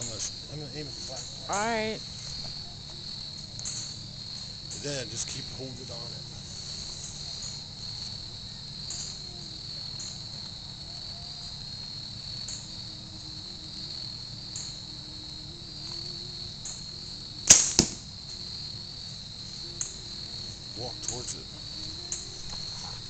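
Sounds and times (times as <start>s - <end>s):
crickets trilling: 0.0s - 23.0s
bow string snap: 16.6s - 18.4s, 19.7s - 20.1s
arrow striking target: 17.4s - 18.2s.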